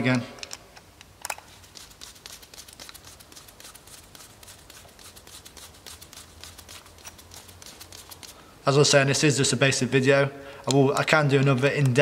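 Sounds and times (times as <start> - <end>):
screwdriver clicking and scraping: 0.4 - 1.9, 6.4 - 8.4.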